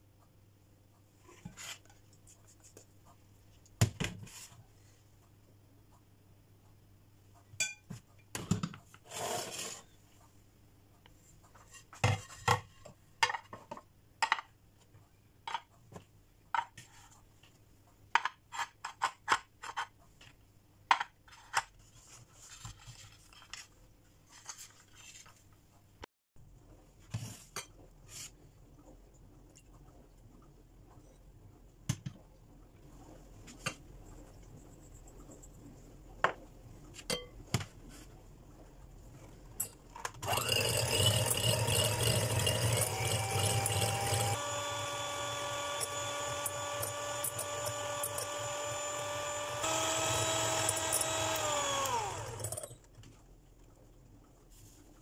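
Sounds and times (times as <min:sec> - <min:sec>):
metal spoon scraping glass cups: 0:40.3 - 0:44.4.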